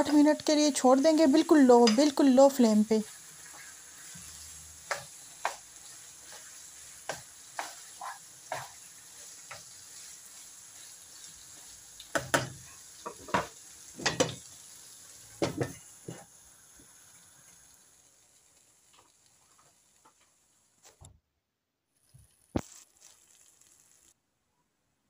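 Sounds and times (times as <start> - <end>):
faint sizzle: 0.0 - 21.1, 22.0 - 24.6
spatula scraping a pan: 2.9 - 14.4.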